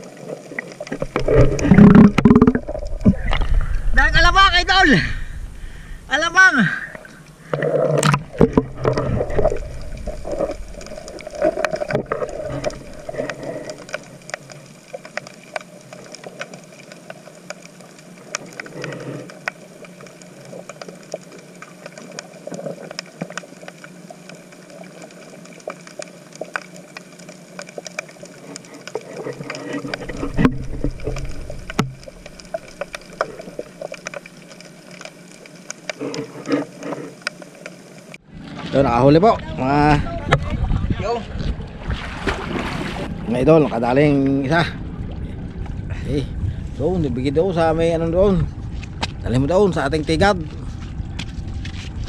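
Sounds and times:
crackle of small clicks: 0.0s - 3.8s, 7.2s - 38.2s
low water hush: 0.0s - 52.0s
underwater sloshing and bubbling: 0.0s - 52.0s.

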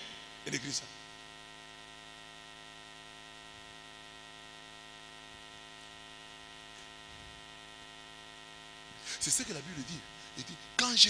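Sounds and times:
electrical mains hum: 0.0s - 11.0s.

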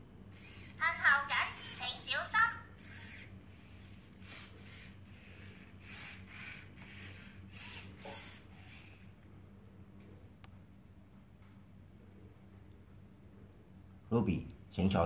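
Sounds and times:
robot servo motors whirring: 0.3s - 2.1s, 2.8s - 9.1s.

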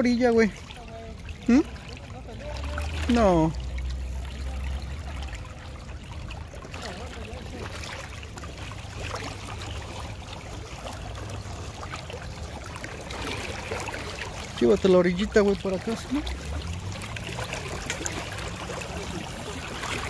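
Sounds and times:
river water rushing and rippling: 0.0s - 20.0s.

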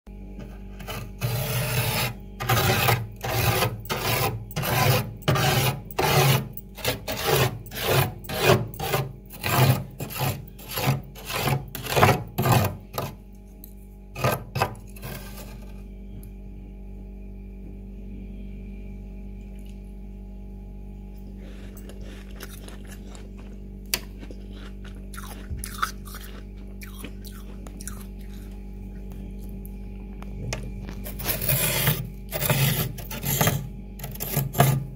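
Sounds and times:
steady low hum: 0.1s - 34.9s
metal spoon scraping frost: 0.4s - 13.2s, 14.2s - 15.8s, 21.4s - 26.4s, 30.9s - 34.9s.

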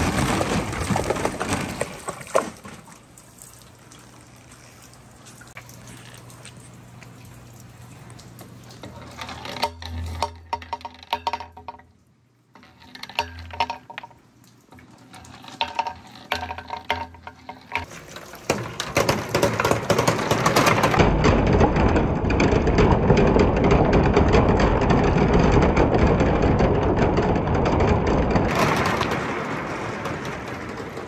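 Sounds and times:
balls rattling down wooden slide: 0.0s - 2.9s, 8.8s - 31.0s
plastic balls clattering through pipe: 0.0s - 3.2s, 8.5s - 31.0s
balls splashing into water: 0.0s - 4.2s.

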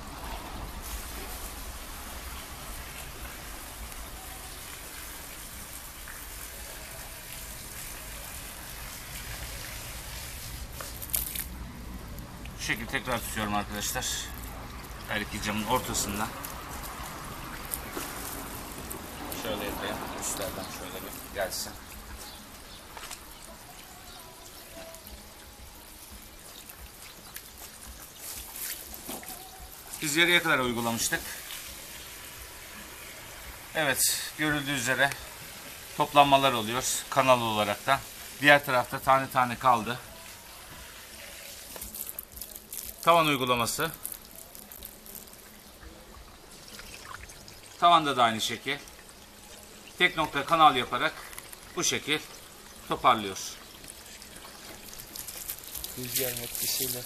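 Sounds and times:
hose water spraying on glass: 0.0s - 57.0s.

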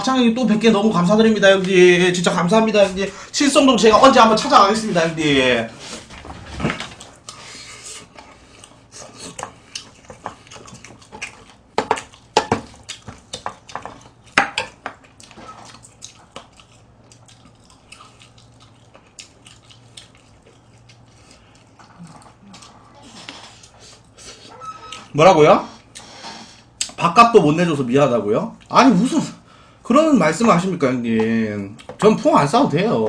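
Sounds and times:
wet chewing and smacking: 6.9s - 25.1s.

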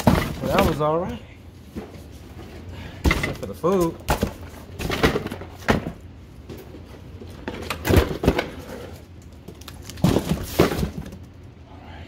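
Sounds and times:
boxes knocking in cardboard box: 0.0s - 0.9s, 10.0s - 11.2s.

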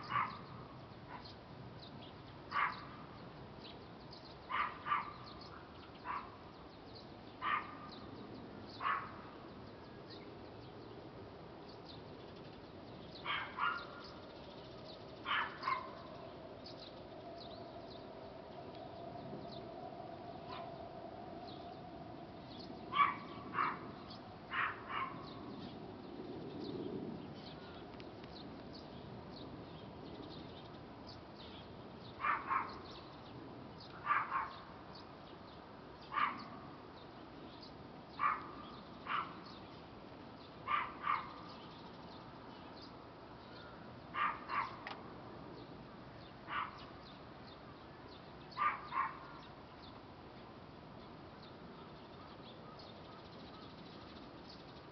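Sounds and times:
dog barking: 0.0s - 0.5s, 2.5s - 3.0s, 4.5s - 5.2s, 6.0s - 6.4s, 7.4s - 7.9s, 8.8s - 9.2s, 13.3s - 14.1s, 15.3s - 16.1s, 22.9s - 23.9s, 24.5s - 25.4s, 32.2s - 32.8s, 34.0s - 34.7s, 36.1s - 36.7s, 38.2s - 39.4s, 40.7s - 41.5s, 44.2s - 44.9s, 46.5s - 46.9s, 48.6s - 49.4s.

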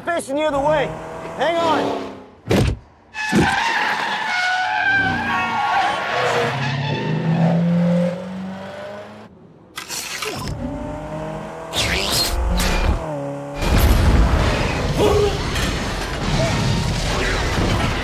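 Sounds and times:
car engine revving: 0.6s - 2.2s, 10.5s - 15.0s.

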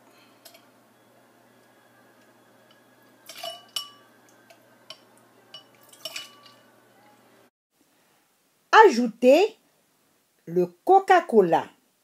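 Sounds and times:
spoon tapping glass: 2.6s - 6.7s.

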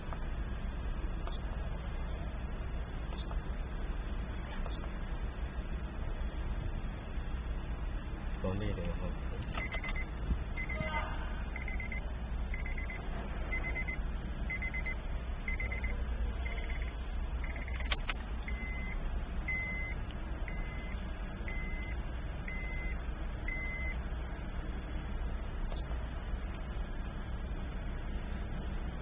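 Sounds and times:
steady low hum: 0.0s - 29.0s
high electronic beep: 9.6s - 10.8s, 11.6s - 24.0s.

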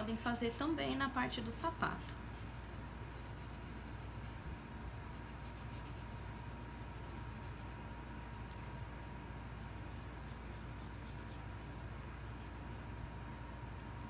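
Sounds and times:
low steady hum: 0.0s - 14.0s
fingertip rubbing foam: 2.4s - 7.8s.

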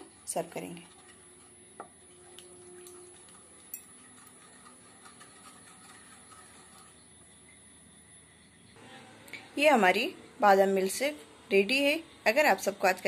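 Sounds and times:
spatula scraping in wok: 0.0s - 7.5s.

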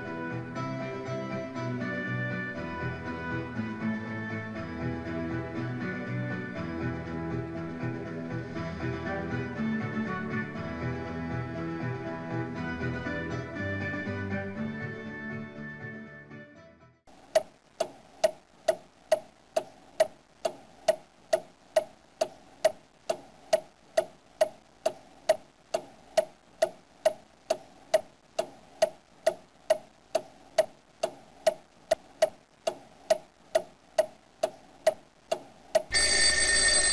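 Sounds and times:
clock ticking with ringing note: 35.9s - 36.9s.

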